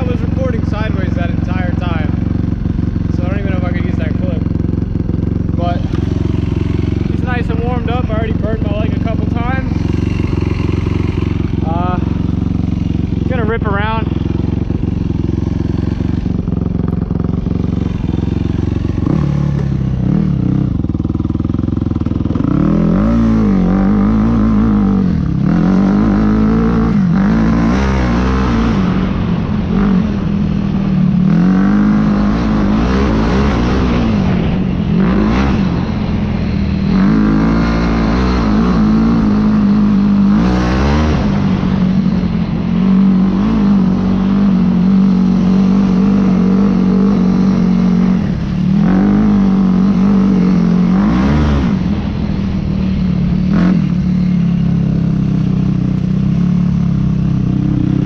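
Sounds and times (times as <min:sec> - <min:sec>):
quad engine revving: 0:00.0 - 0:58.0.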